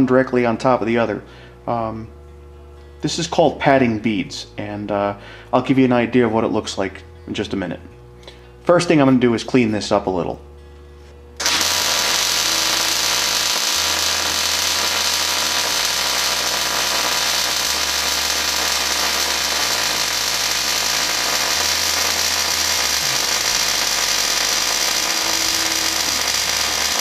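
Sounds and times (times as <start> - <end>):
welding arc sizzling: 11.4 - 27.0.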